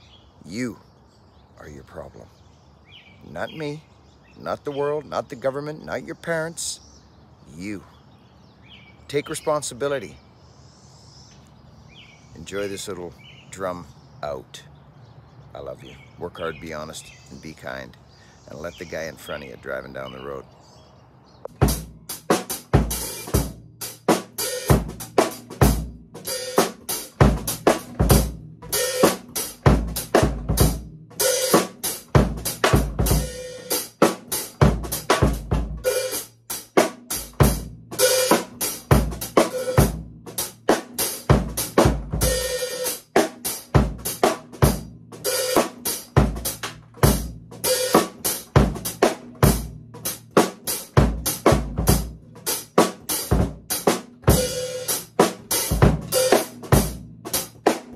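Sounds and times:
drum kit groove: 21.5 - 57.9.

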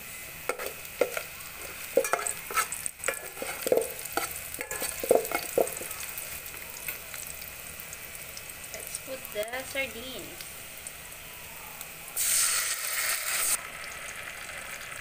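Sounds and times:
onions sizzling in oil: 0.0 - 15.0
metal spoon scraping a pot: 0.5 - 6.0.

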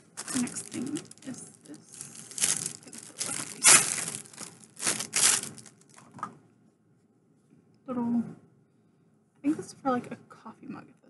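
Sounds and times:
plastic packaging crinkling: 0.0 - 6.1.

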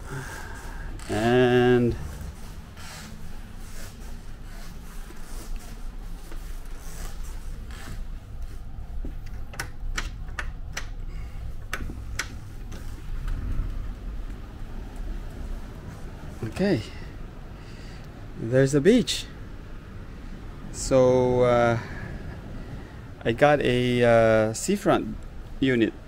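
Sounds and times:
curtain handling rumble: 0.0 - 9.9, 11.1 - 16.6.

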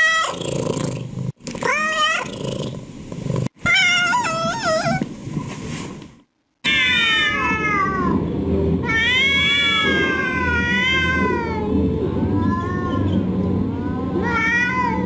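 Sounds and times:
cat meowing: 1.6 - 2.3, 3.6 - 5.0, 6.6 - 8.2, 8.8 - 11.7, 14.2 - 15.0.

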